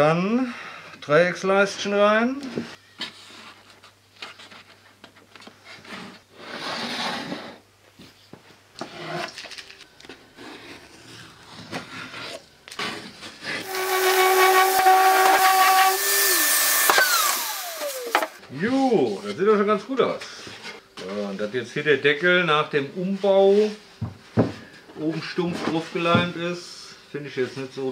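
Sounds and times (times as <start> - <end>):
orbital sander whining: 13.6 - 18.4
knocks and rustles of box handling: 24.0 - 24.7.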